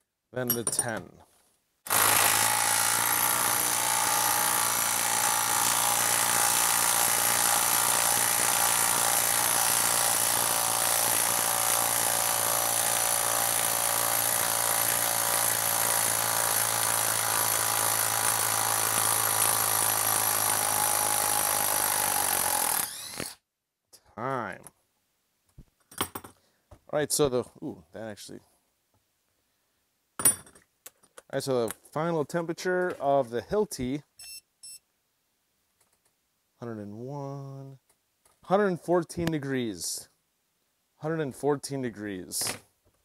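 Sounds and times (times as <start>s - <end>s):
impact driver hammering: 1.9s - 23.4s.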